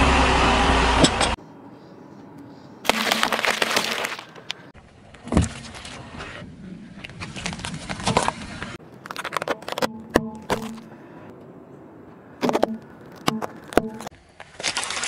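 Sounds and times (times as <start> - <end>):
sprouts crunching: 2.9 - 4.4.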